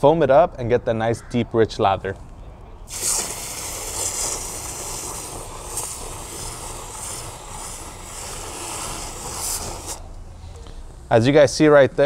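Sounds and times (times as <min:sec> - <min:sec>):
hose spraying water into bucket: 0:02.9 - 0:10.1.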